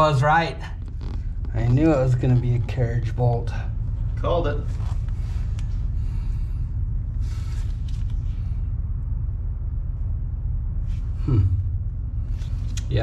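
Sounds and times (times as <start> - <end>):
low machine rumble: 0.0 - 13.0.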